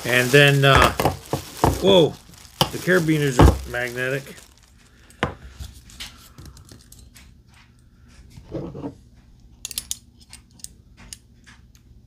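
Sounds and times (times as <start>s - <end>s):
rope rustling: 0.0s - 4.9s.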